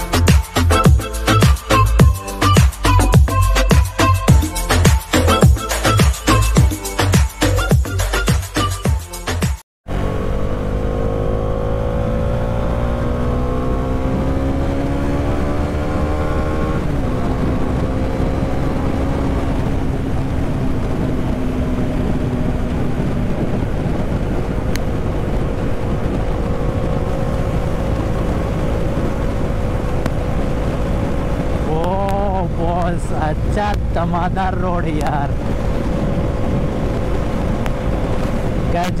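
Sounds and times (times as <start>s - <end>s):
motorcycle engine accelerating: 9.8s - 39.0s
wind rush on microphone: 10.5s - 39.0s.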